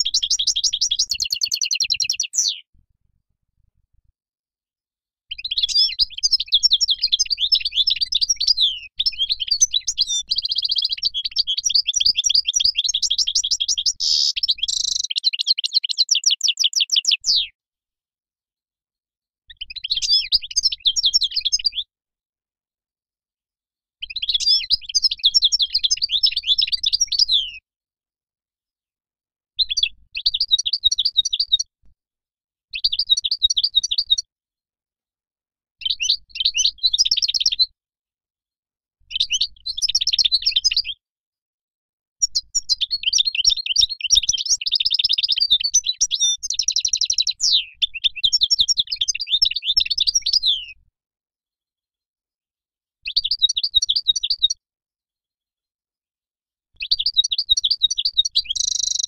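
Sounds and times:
goldfinch singing: 0.0 - 2.7, 5.3 - 17.5, 42.3 - 50.8, 56.8 - 59.0.

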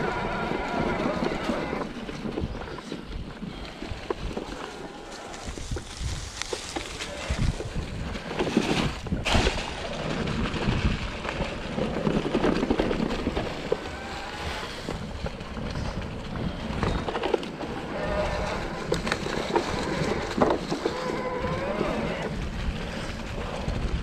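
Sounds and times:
bike tyre noise on dirt: 0.0 - 24.0
wind buffeting microphone: 0.0 - 24.0
bike knocks and rattles: 5.4 - 17.8.

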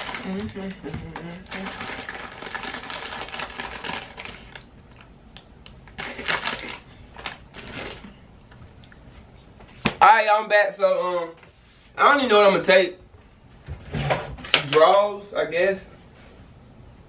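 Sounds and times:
chip bag crinkling: 0.0 - 0.4, 1.5 - 5.1, 5.9 - 8.2
chips crunching: 1.5 - 8.2.

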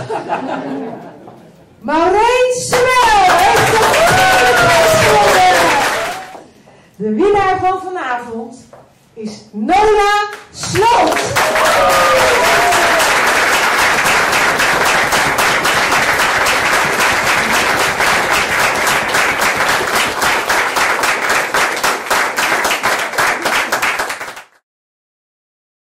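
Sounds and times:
audience applauding: 3.1 - 6.5, 10.7 - 24.6.

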